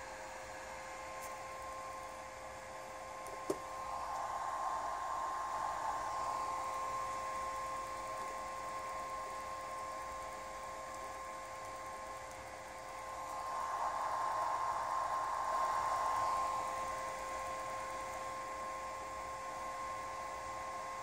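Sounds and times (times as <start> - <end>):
inverter electrical whine: 0.0 - 21.0
fan-like rushing noise: 3.3 - 10.8, 11.7 - 20.8.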